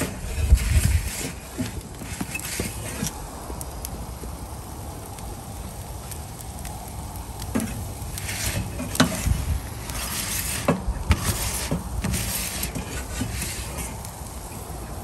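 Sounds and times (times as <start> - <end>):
metal peel scraping stone: 0.0 - 3.2, 7.6 - 14.0
gas burner low rumble: 0.0 - 15.0.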